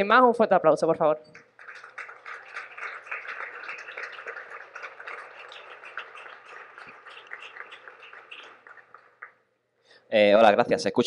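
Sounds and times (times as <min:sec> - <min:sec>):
audience applauding: 0:01.3 - 0:09.4.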